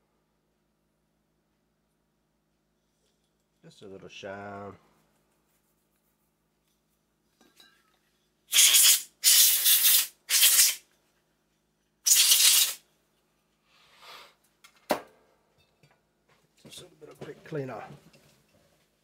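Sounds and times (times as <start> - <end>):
hissing blasts of spray: 8.5 - 10.8, 12.1 - 12.8
faint hiss: 8.5 - 10.9, 12.0 - 12.8.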